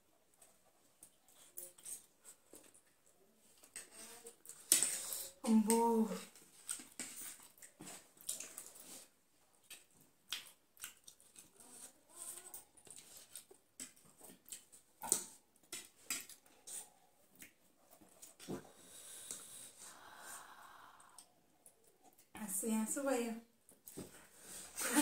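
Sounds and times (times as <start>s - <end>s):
chewing and slurping noodles: 6.2s - 19.8s.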